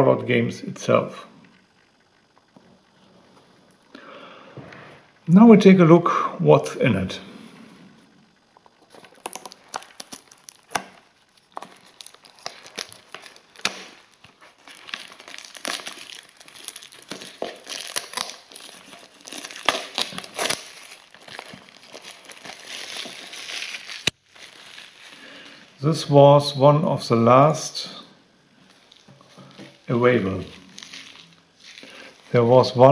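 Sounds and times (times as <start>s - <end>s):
plastic wrap crinkling: 8.5s - 25.8s, 28.5s - 32.9s.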